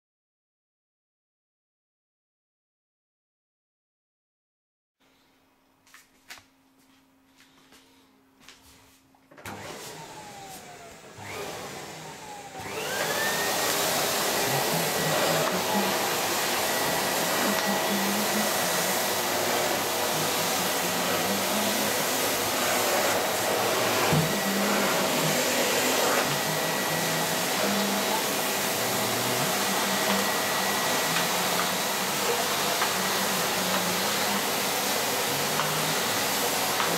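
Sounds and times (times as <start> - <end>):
vacuum cleaner running: 8.9 - 36.9.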